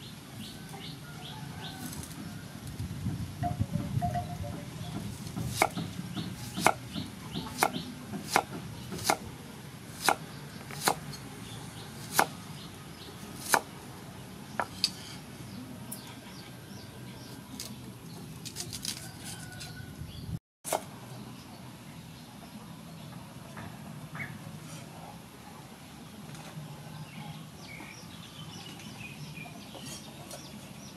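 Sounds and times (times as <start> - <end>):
cleaver chopping on wooden board: 5.0 - 9.2, 10.0 - 11.0, 12.0 - 12.3, 13.4 - 13.7.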